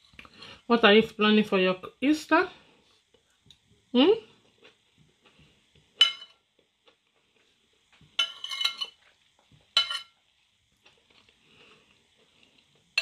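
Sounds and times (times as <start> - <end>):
metal spoon clinking on ceramic plate: 6.0 - 6.4, 8.2 - 9.0, 9.8 - 10.1.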